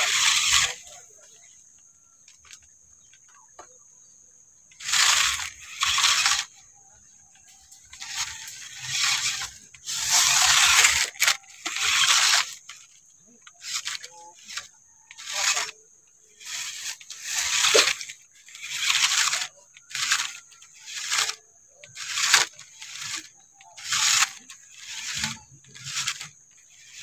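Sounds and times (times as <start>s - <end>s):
rc truck motor bursts: 0.0s - 27.0s.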